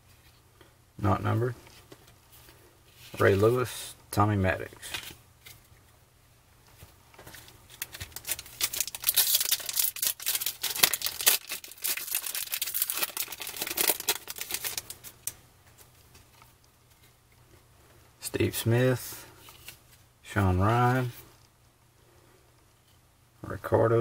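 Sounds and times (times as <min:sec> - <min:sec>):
foil wrapper tearing and crinkling: 0:07.7 - 0:15.4.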